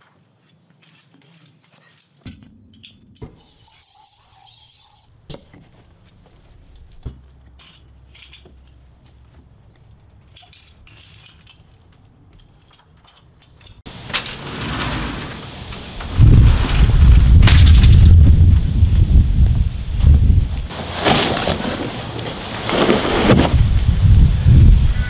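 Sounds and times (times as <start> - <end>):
wind buffeting microphone: 15.5 - 20.7, 23.1 - 25.0.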